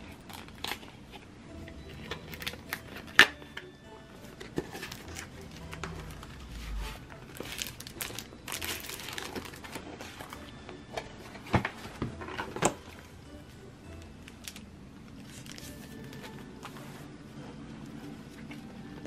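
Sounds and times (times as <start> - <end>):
soft background music: 0.0 - 19.0
plastic film crinkling: 0.1 - 1.2, 4.6 - 10.4, 14.3 - 16.3.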